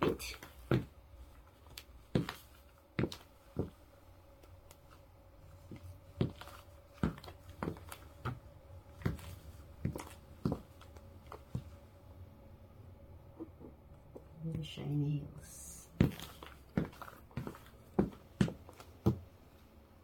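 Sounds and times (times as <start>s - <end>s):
heels clicking on hard floor: 0.4s - 1.0s, 1.6s - 4.9s, 5.6s - 11.8s, 15.9s - 19.3s.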